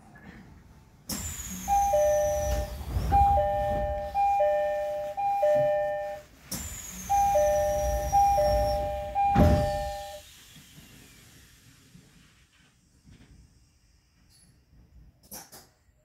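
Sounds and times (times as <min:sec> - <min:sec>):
sliding doors thudding shut: 0:01.1 - 0:04.6, 0:06.6 - 0:10.2
two-note door chime: 0:01.7 - 0:06.2, 0:07.1 - 0:10.2.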